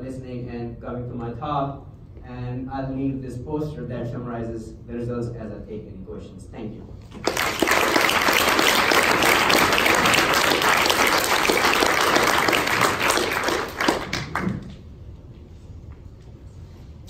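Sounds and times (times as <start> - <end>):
audience applauding: 7.2 - 14.8.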